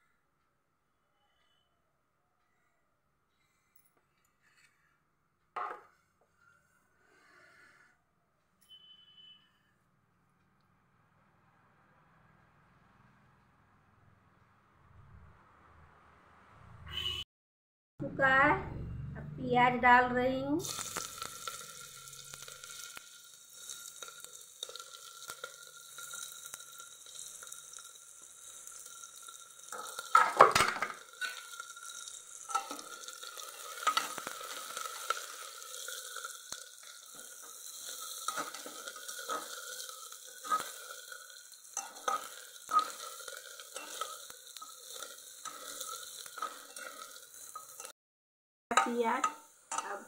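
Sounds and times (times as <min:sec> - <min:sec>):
metal spatula scraping pot: 0:20.6 - 0:47.9, 0:48.7 - 0:50.0
onions sizzling in oil: 0:20.6 - 0:47.9, 0:48.7 - 0:50.0.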